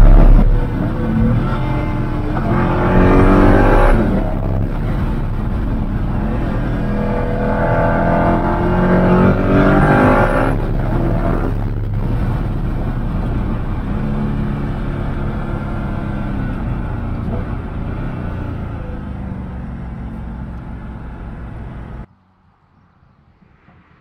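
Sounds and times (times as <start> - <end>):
car engine revving from inside: 0.0 - 22.1.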